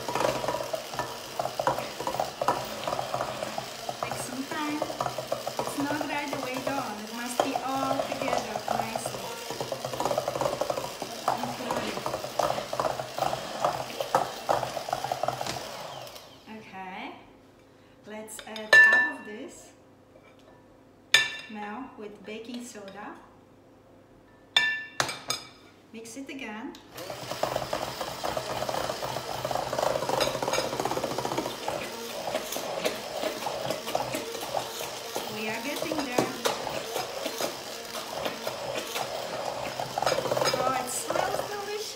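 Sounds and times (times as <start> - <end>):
stick blender churning batter: 0.0 - 16.5, 27.0 - 41.9.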